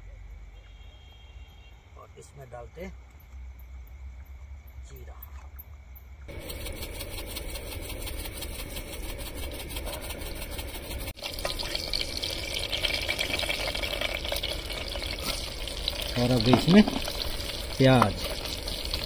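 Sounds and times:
seeds sizzling in hot oil: 0:06.3 - 0:19.0.

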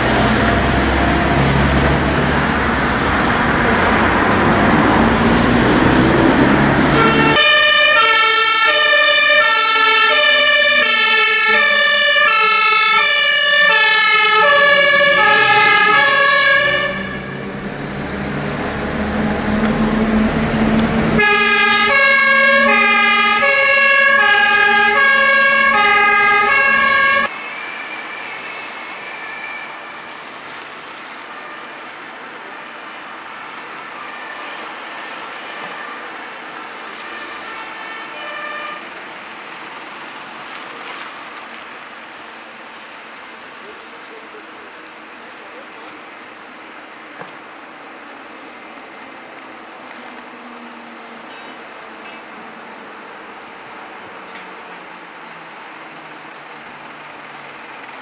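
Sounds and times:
engine pulling away: 0:00.0 - 0:08.2, 0:10.5 - 0:23.4, 0:27.2 - 0:31.3, 0:31.9 - 0:43.2
road traffic noise: 0:00.0 - 0:58.0
two-tone siren: 0:06.9 - 0:17.5, 0:21.2 - 0:30.2, 0:33.7 - 0:39.0.

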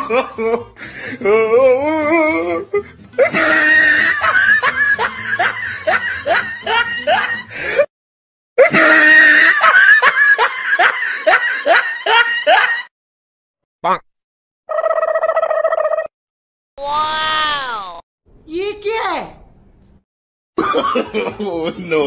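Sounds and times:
music: 0:00.0 - 0:07.8
high-pitched laughter: 0:03.2 - 0:07.5, 0:08.6 - 0:12.9, 0:14.7 - 0:16.1.

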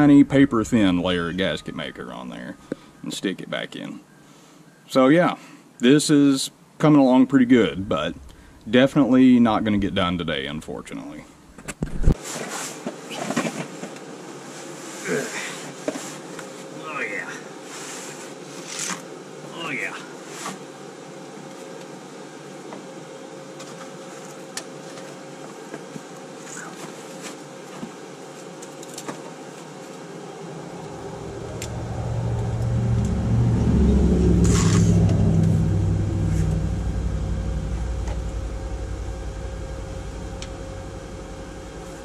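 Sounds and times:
vehicle engine rumble: 0:07.5 - 0:10.7, 0:30.2 - 0:42.0.

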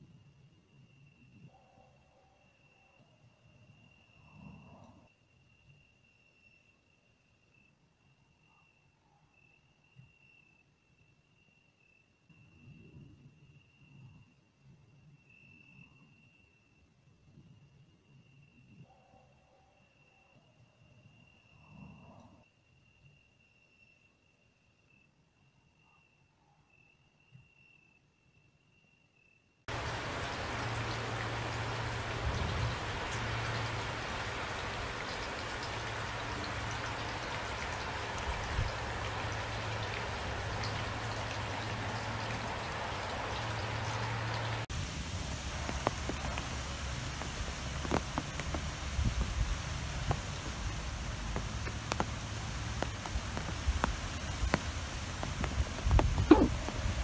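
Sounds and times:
raindrops tapping close by: 0:29.7 - 0:57.0
steady rain hiss: 0:29.7 - 0:57.0.

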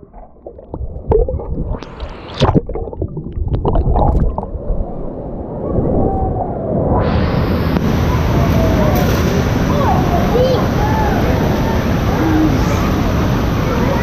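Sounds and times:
bubbles popping: 0:00.0 - 0:04.7
muffled underwater rumble: 0:00.0 - 0:14.0
pool water above surface: 0:00.0 - 0:14.0.

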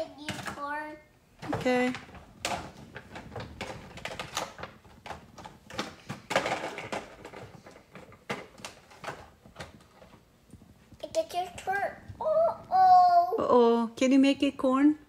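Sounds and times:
plastic toys clattering in bin: 0:01.4 - 0:10.2.

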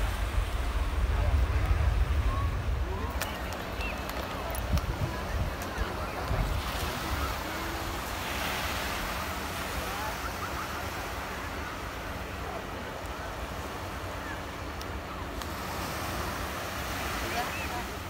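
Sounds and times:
wind buffeting microphone: 0:00.0 - 0:08.8
faint voices: 0:00.0 - 0:18.0
small waves washing onto sand: 0:00.0 - 0:18.0.

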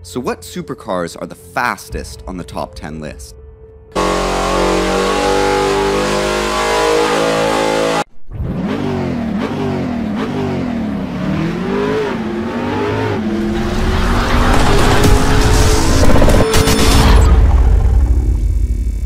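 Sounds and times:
car engine revving: 0:04.0 - 0:18.4.

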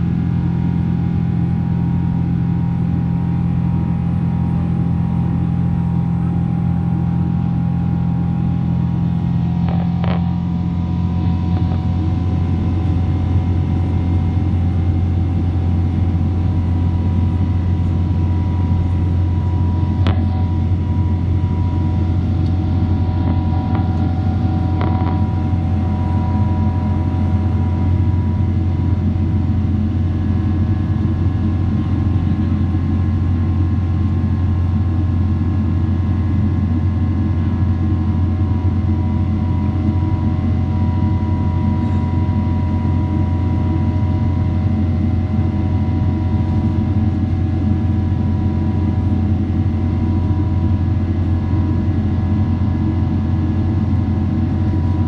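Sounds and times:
jet engine drone: 0:00.0 - 0:55.0
faint whining tones: 0:05.6 - 0:33.0.

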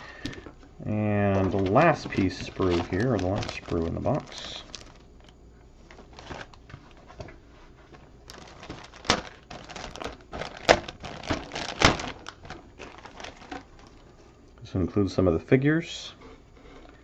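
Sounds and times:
plastic bag crinkling: 0:01.1 - 0:07.2, 0:07.8 - 0:14.2.

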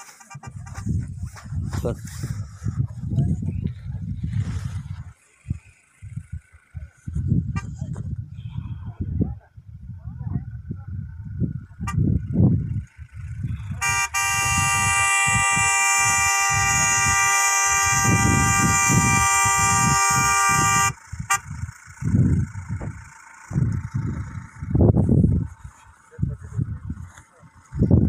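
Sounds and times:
vehicle horn long blast: 0:00.0 - 0:01.4, 0:13.5 - 0:21.8.

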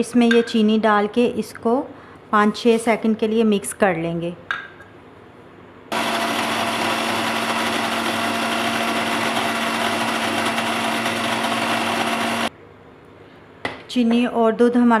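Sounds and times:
blender motor running: 0:05.9 - 0:12.5.

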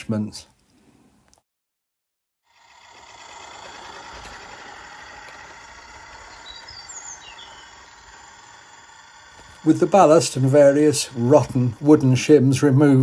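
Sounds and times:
outdoor background noise: 0:02.5 - 0:13.0
faint bird chirps: 0:06.3 - 0:08.1.

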